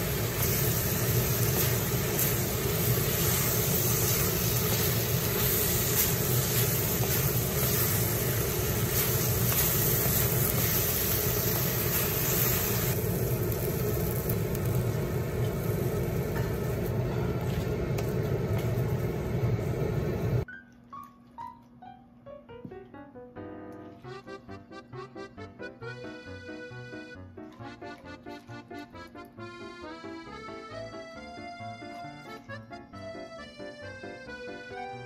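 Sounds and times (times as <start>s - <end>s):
piano music: 0.0s - 13.0s, 20.4s - 35.0s
food sizzling in a wok: 0.0s - 20.4s
spatula tossing food in wok: 1.2s - 13.0s.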